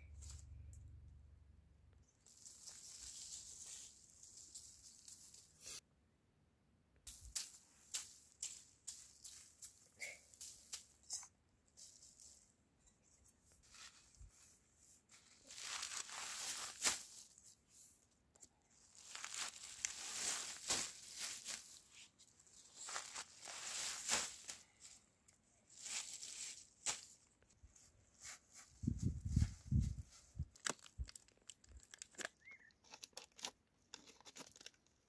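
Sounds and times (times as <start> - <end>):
leaves rustling and crinkling: 0.1 - 0.5, 2.1 - 5.8, 7.1 - 12.5, 13.2 - 18.0, 18.7 - 33.5.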